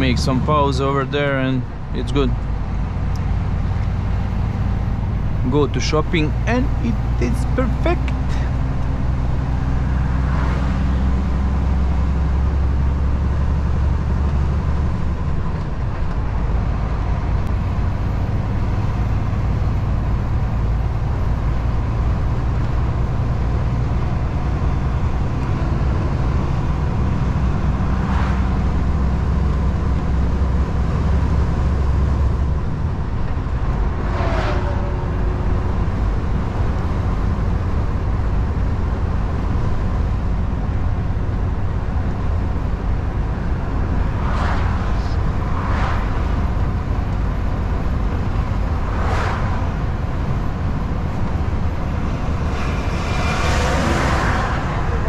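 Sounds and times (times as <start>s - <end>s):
truck diesel engine droning: 0.0s - 55.0s
tyre and road noise: 0.0s - 55.0s.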